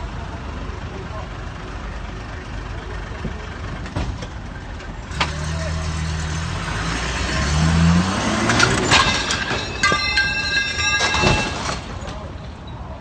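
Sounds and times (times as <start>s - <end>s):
tow truck diesel engine revving: 4.4s - 11.0s
high metallic squeal: 8.2s - 12.8s.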